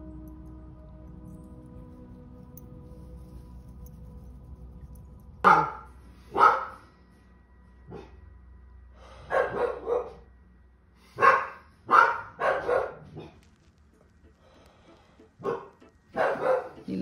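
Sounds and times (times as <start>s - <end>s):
dog barking: 5.4s - 6.8s, 7.9s - 8.2s, 9.3s - 10.3s, 11.2s - 13.4s, 15.4s - 16.9s.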